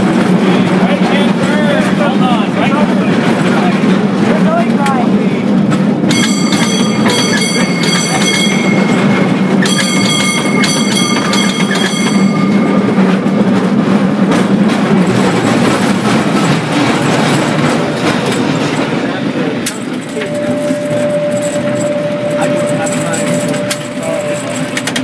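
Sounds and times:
cable car rumble and rattle: 0:00.0 - 0:25.0
cable car bell clanging: 0:05.8 - 0:25.0.

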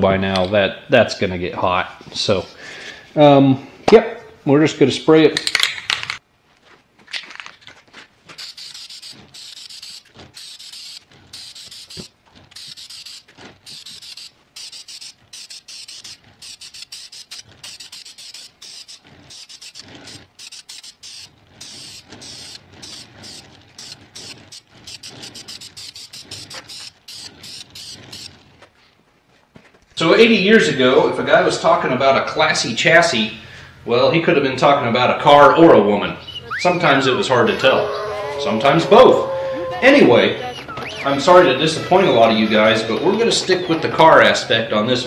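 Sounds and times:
aerosol spray can hissing: 0:08.4 - 0:28.2.

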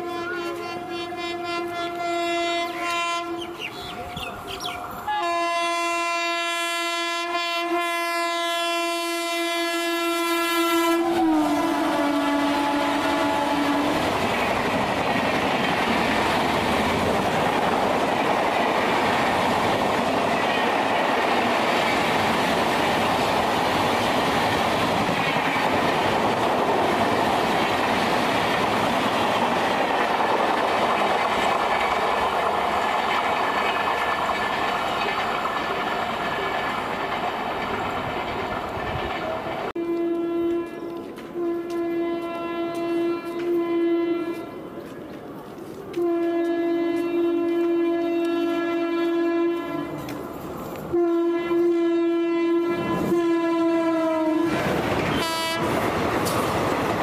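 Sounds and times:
locomotive horn blasts: 0:00.0 - 0:03.7, 0:05.1 - 0:14.0, 0:39.8 - 0:44.6, 0:45.9 - 0:50.2, 0:50.9 - 0:55.8
train wheels clattering over rail joints: 0:14.1 - 0:39.7, 0:54.5 - 0:57.0.

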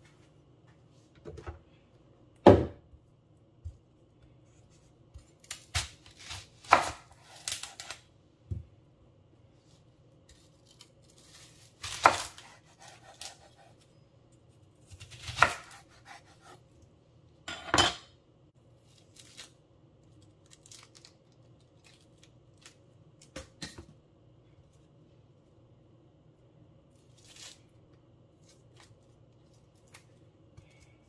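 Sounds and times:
knife cutting onion on board: 0:05.1 - 0:08.0, 0:10.3 - 0:13.8, 0:14.8 - 0:16.7.

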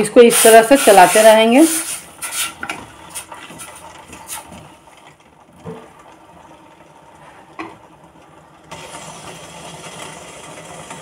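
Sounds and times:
wooden spoon stirring in steel bowl: 0:00.0 - 0:04.8.

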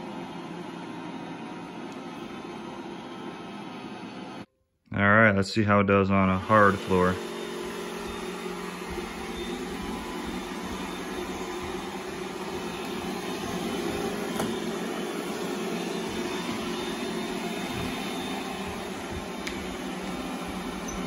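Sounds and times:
robot vacuum humming: 0:06.2 - 0:21.0.

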